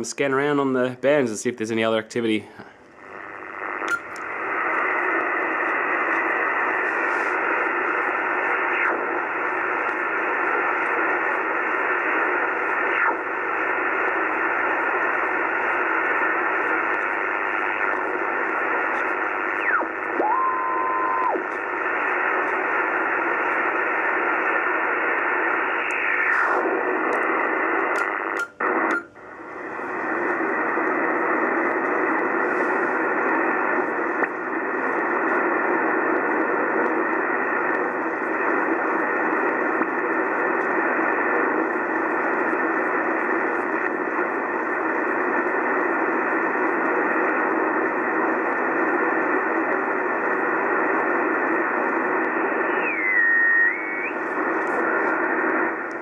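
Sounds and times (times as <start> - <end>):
radio static hiss: 0.0 - 56.0
falling heterodyne whistles: 52.9 - 54.1.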